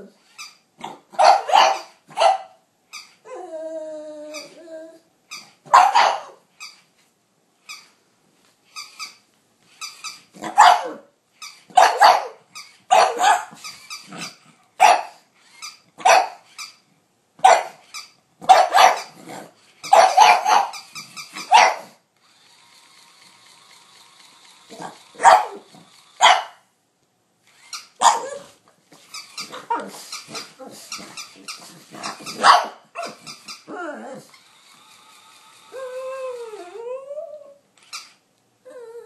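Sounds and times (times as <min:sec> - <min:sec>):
dog barking: 0:01.2 - 0:02.6, 0:05.7 - 0:06.4, 0:10.5 - 0:11.0, 0:11.8 - 0:13.5, 0:14.8 - 0:15.2, 0:16.0 - 0:16.4, 0:17.4 - 0:17.8, 0:18.4 - 0:19.1, 0:19.9 - 0:20.8, 0:21.5 - 0:22.0, 0:25.2 - 0:26.6, 0:28.0 - 0:28.4, 0:32.4 - 0:33.2.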